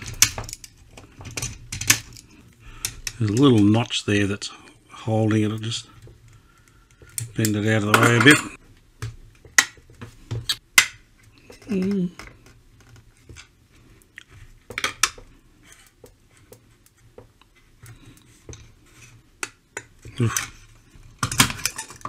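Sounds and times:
person humming: 11.6 - 12.2.

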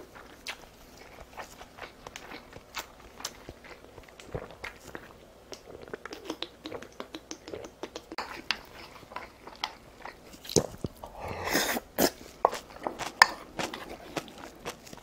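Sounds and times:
close chewing: 0.0 - 15.0
mouth clicks: 5.5 - 8.2.

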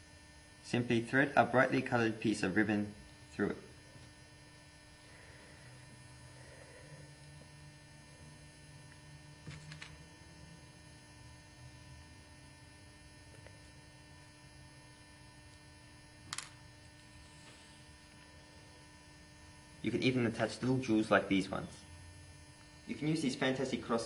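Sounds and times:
low electrical hum: 0.0 - 24.0.

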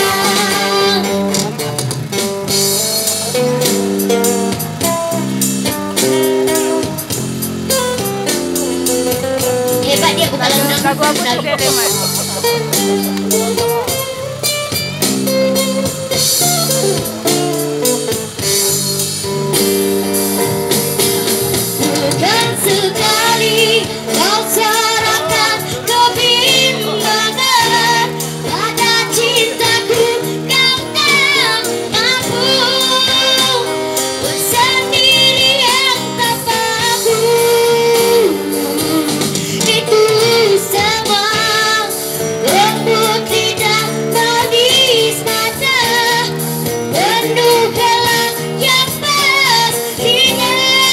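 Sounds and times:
girl singing through a microphone: 0.0 - 1.7, 9.2 - 14.0, 21.8 - 50.9
band with amplified guitars: 0.0 - 50.9.

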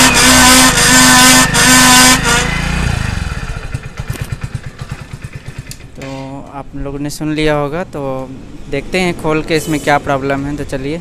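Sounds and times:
drum brake grinding squeal: 0.0 - 2.6
motorcycle engine running: 0.0 - 6.2.

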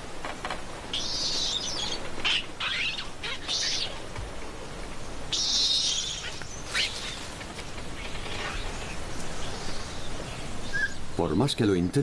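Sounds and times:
infant monkey shrill squeals: 0.9 - 4.0, 5.3 - 7.2.

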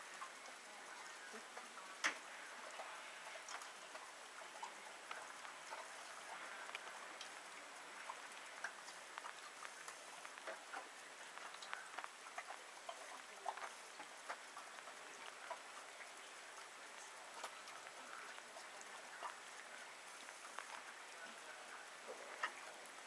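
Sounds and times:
low hiss: 0.0 - 23.0.

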